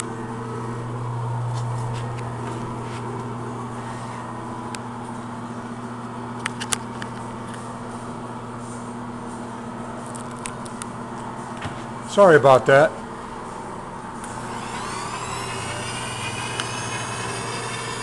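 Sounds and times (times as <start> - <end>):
electric motor hum: 0.0 - 5.8, 13.8 - 18.0.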